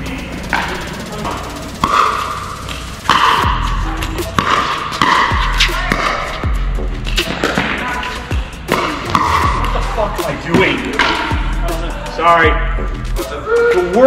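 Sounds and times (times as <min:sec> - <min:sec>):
music with deep bass beat: 0:00.0 - 0:14.0
paddles hitting plastic ball: 0:04.3 - 0:06.2.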